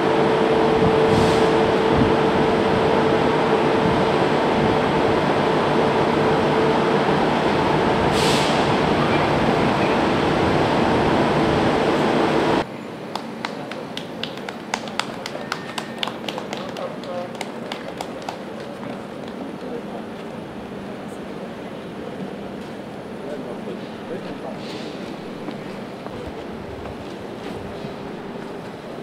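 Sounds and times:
short hiss: 8.1s - 8.7s.

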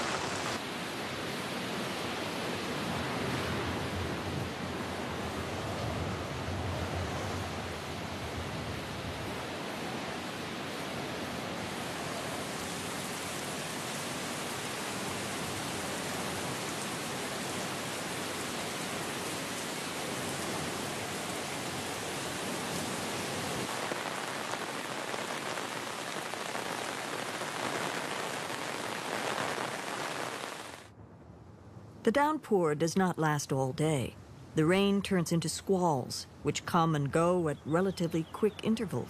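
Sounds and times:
heavy rain falling: 0.0s - 30.9s.

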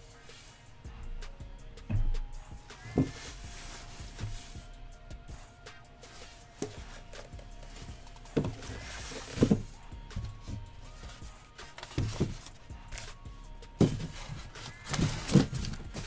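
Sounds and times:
faint background music: 0.0s - 16.0s
styrofoam blocks knocking: 2.8s - 3.4s, 6.6s - 10.6s, 11.6s - 13.1s, 13.8s - 16.0s
tissue paper rustling: 2.8s - 4.8s, 6.0s - 13.2s, 13.8s - 16.0s.

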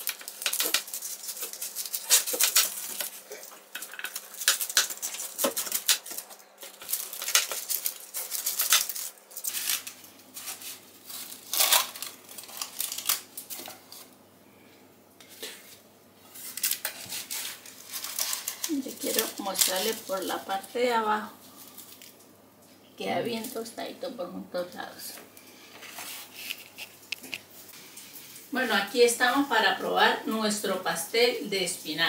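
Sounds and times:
crunching of flaky pastry: 0.0s - 14.1s, 16.3s - 20.3s.

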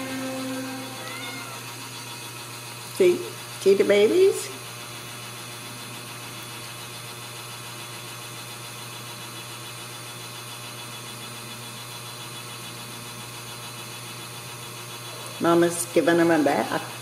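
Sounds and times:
low hum with hiss: 0.0s - 2.4s.

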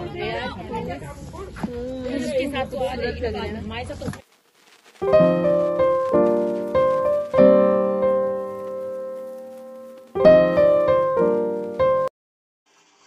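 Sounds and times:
piano chords: 5.0s - 12.1s.

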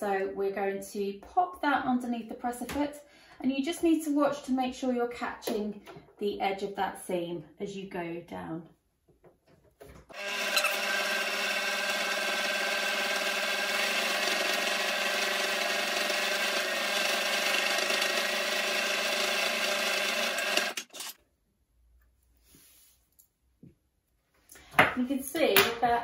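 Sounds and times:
sewing machine running: 10.1s - 21.2s.

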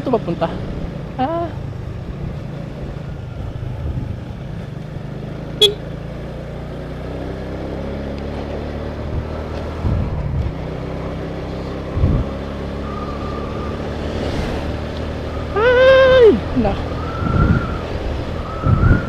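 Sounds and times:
road and wind noise: 0.0s - 19.0s
motor scooter engine running: 0.1s - 12.7s.

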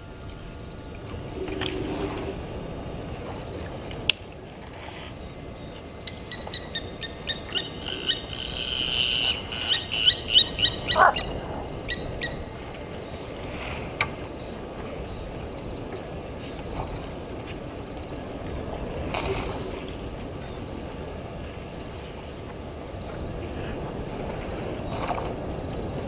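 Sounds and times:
bird metallic alarm calls: 6.1s - 12.4s.

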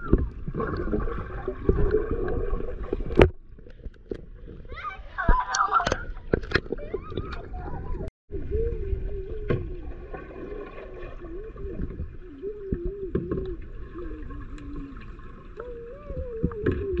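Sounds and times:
muffled underwater rumble: 0.0s - 5.4s, 6.0s - 17.0s
sharp underwater clicks: 5.4s - 7.5s.

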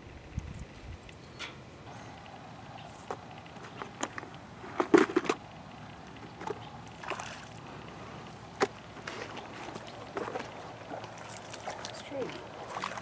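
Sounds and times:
fish splashing in water: 2.1s - 13.0s.

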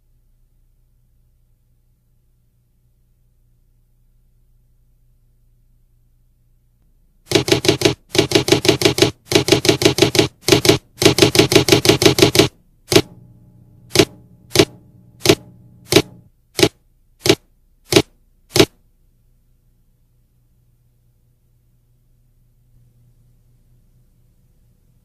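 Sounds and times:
typewriter key clicks: 7.3s - 13.1s, 13.9s - 16.7s.

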